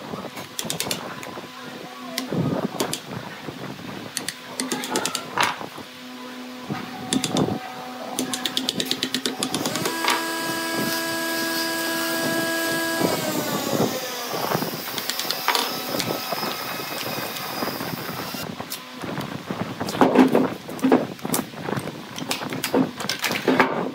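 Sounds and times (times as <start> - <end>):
steady pitched whine: 6.0 - 18.5.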